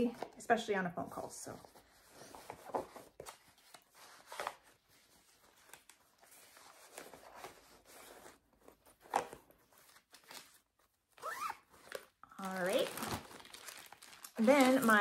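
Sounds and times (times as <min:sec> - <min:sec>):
faint rustling of bags: 0:11.6 - 0:15.0.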